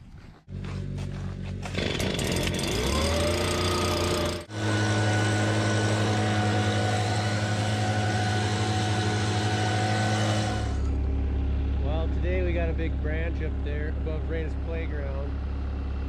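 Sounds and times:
leaf blower engine revving: 0.5 - 11.2.

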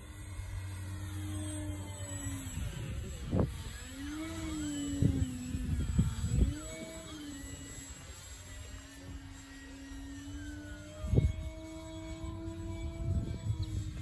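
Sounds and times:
model plane motor whine: 0.0 - 14.0
wind buffeting microphone: 0.0 - 14.0.

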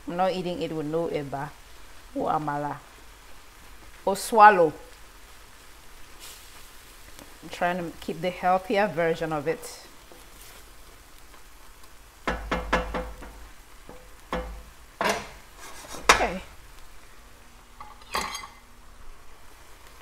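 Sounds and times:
spatula knocking against pan: 12.2 - 15.4.

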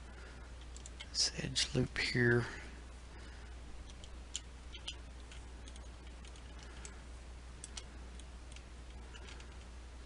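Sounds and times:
low steady hum: 0.0 - 10.0
mouse and keyboard clicks: 3.8 - 7.0, 7.6 - 9.7.

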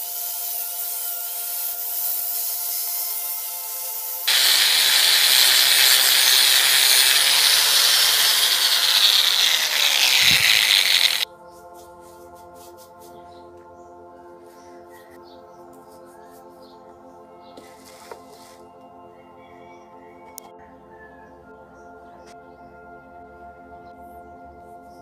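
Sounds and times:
angle grinder on metal tube: 4.3 - 11.2.

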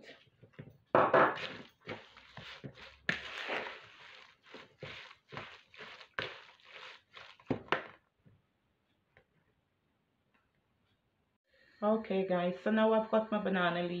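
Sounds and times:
spatula scraping batter in bowl: 1.3 - 7.8.

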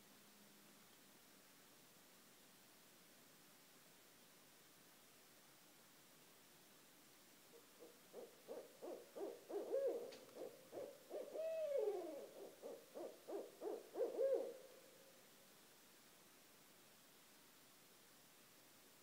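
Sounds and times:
owls hooting: 7.8 - 14.8.

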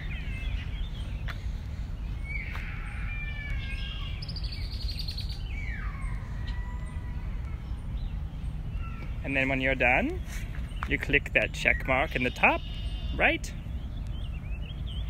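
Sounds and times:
birds singing: 0.0 - 15.0
low outdoor rumble: 0.0 - 15.0
high bird trill: 2.2 - 15.0.

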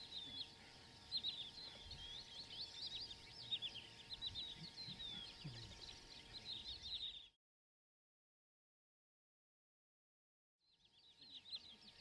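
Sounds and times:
birds chirping and twittering: 0.0 - 7.4, 10.6 - 12.0.

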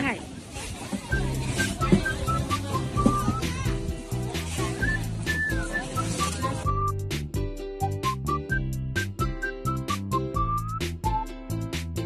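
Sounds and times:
whistled melody: 1.1 - 3.5, 4.7 - 11.5
bass line: 1.2 - 12.0.

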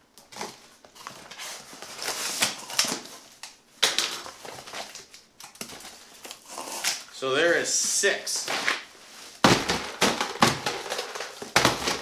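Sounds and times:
cardboard and tape rustling: 0.2 - 7.1, 7.8 - 12.0
cardboard cracking and tearing: 0.4 - 3.3.

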